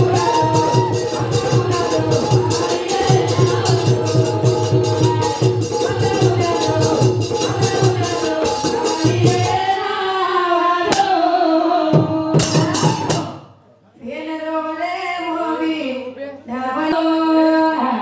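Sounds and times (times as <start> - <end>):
hand drum beats: 0.0 - 9.7
woman singing into microphone: 0.0 - 13.4, 14.0 - 18.0.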